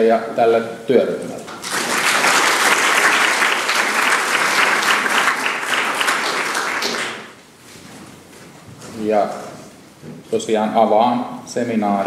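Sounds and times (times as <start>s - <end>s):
audience applauding: 1.5s - 7.4s.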